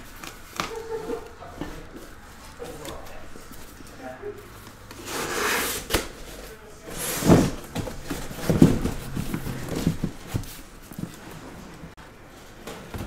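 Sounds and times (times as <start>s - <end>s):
cardboard brushing: 4.6s - 11.7s
dull knocks and thumps on cardboard: 7.3s - 11.0s.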